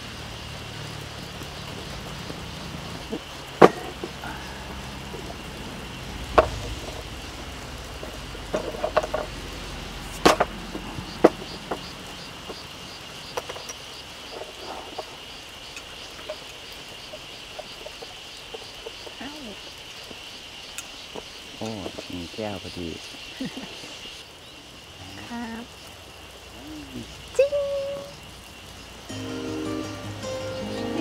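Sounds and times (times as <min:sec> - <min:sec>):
insects chirping: 0:00.0 - 0:31.0
glass bottles knocking on wood: 0:08.5 - 0:09.3.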